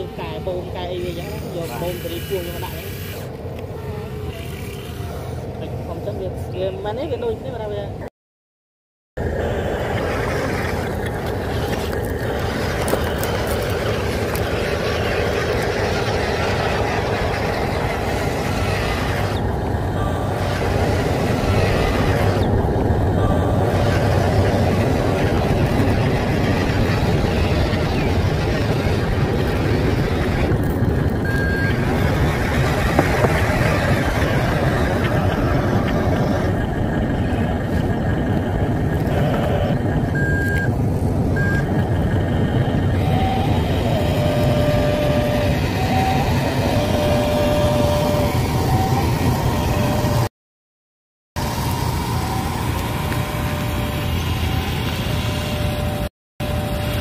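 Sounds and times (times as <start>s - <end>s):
toy truck engine rumble: 9.2s - 50.3s
short electronic beeps: 39.2s - 40.7s.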